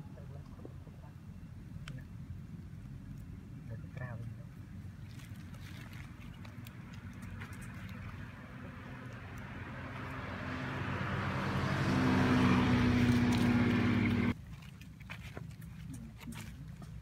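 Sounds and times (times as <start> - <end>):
passing vehicle engine: 6.5 - 14.4.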